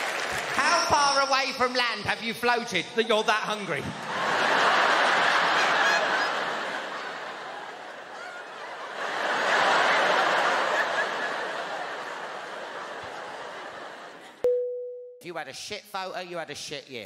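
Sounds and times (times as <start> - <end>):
large audience laughing: 3.8 - 14.4.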